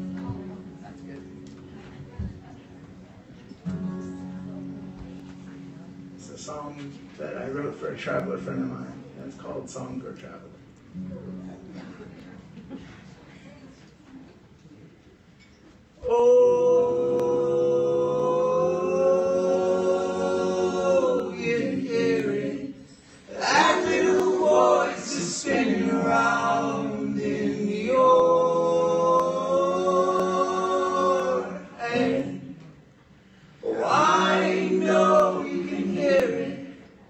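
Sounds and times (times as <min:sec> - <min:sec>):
voices singing in harmony: 0:16.0 - 0:32.7, 0:33.6 - 0:36.9.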